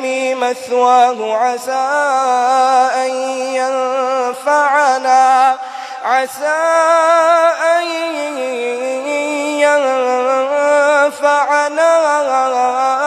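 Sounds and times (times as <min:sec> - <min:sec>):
man chanting melodically: 0:00.0 - 0:13.0
man breathing in: 0:05.6 - 0:06.1.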